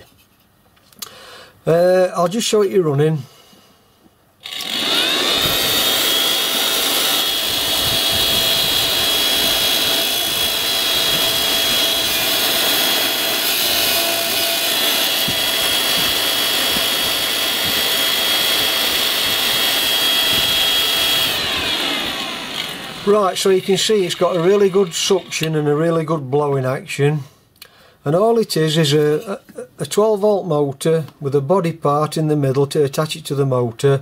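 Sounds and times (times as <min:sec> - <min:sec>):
electric blower fan whining: 0:04.4 - 0:25.8.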